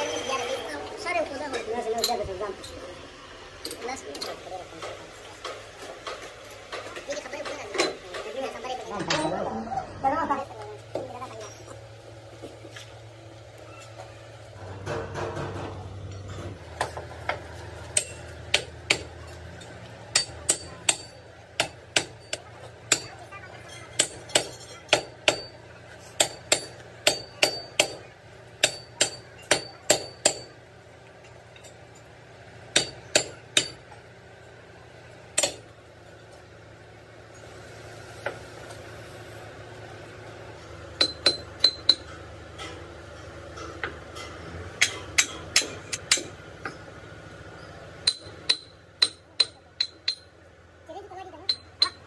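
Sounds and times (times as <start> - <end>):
hammer striking steel: 14.8 - 30.6, 32.7 - 34.0, 35.3 - 35.7, 41.0 - 42.8, 43.6 - 46.8, 48.0 - 50.4.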